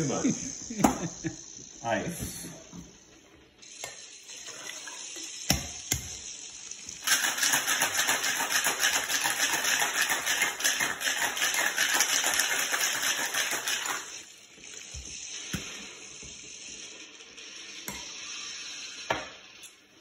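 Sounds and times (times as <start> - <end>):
ice rattling in cocktail shaker: 7.0 - 14.3.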